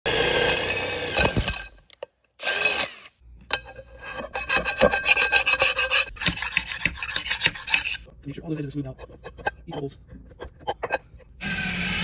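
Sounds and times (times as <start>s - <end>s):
metal scraper rasping on pan: 3.6s - 11.4s
drill boring into metal: 11.4s - 12.0s.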